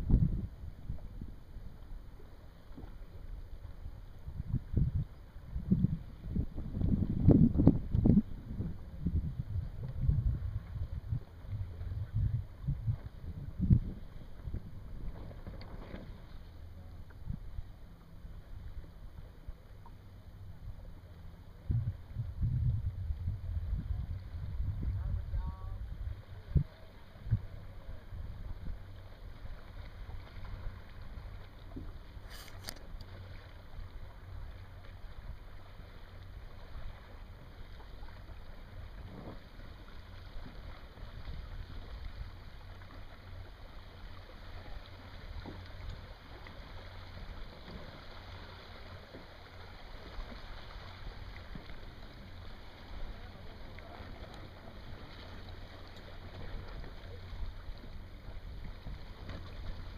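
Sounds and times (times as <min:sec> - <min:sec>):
wind rumbling on microphone: 0:00.0 - 0:59.9
brief click: 0:32.3 - 0:33.1.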